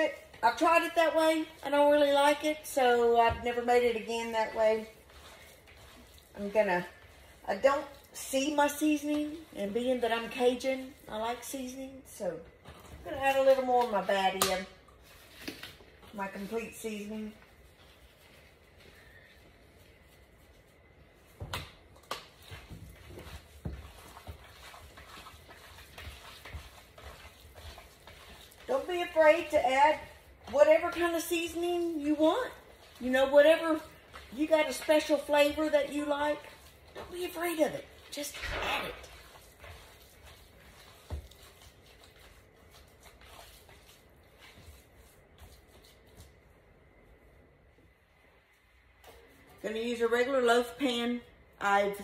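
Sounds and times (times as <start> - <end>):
ground meat squelching by hand: 0.0 - 11.7, 22.0 - 46.4.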